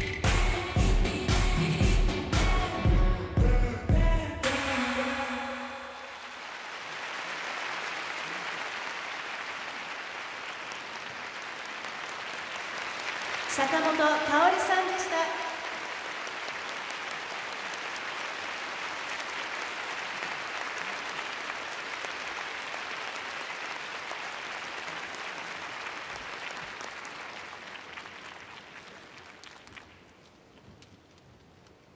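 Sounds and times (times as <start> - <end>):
audience applauding: 6.0 - 30.3.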